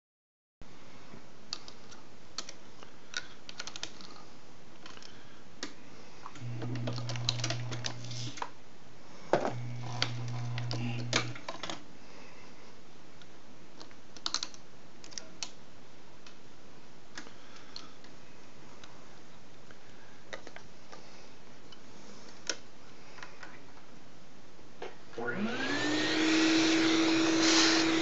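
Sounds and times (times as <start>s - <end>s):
reloading press clicks and clacks: 6.3s - 8.4s
press drive humming: 6.4s - 8.4s, 9.4s - 11.5s, 25.2s - 28.0s.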